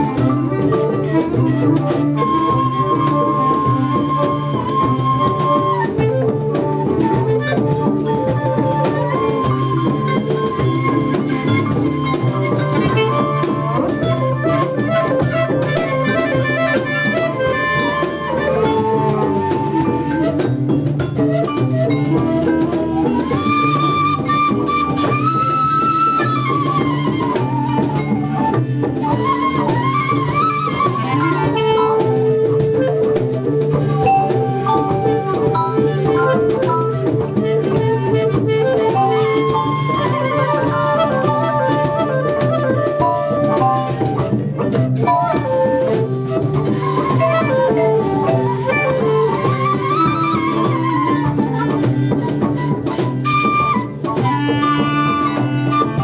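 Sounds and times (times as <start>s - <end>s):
drum kit and cymbals: 0.0s - 56.0s
hand percussion: 0.0s - 56.0s
held bending melody notes: 0.0s - 56.0s.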